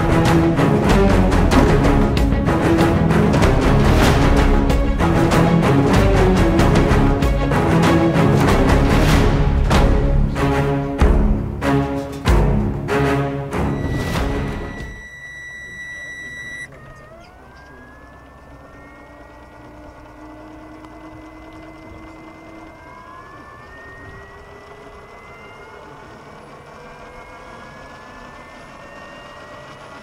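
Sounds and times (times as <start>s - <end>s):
electric motor whine rising: 13.0s - 30.0s
steady high tone: 13.5s - 30.0s.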